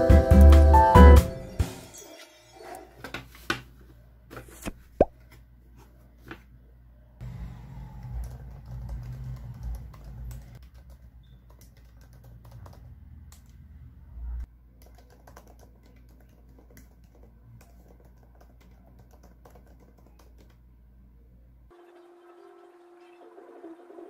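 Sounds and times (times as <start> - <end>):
laptop keyboard typing: 8.1 - 13.5, 14.8 - 20.6.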